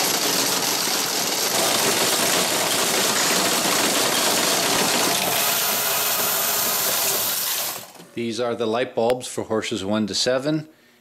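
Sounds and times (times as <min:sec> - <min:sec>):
motor-driven machine running: 0:00.0 - 0:08.2.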